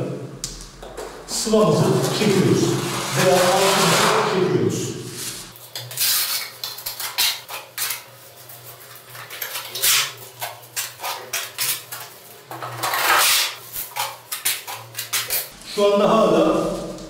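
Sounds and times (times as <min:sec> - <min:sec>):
trowel scraping plaster: 0:01.8 - 0:04.4, 0:08.9 - 0:15.6.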